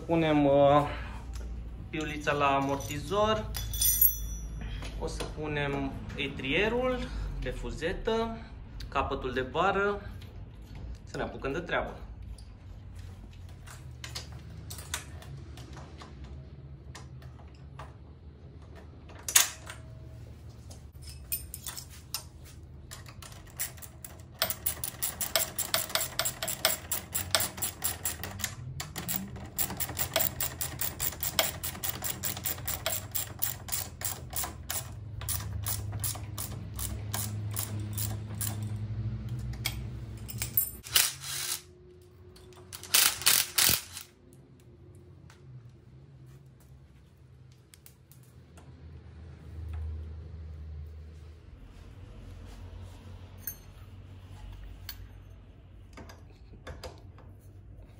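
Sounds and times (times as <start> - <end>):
ratchet wrench clicking: 23.4 - 38.8, 39.6 - 41.7, 42.7 - 44.1.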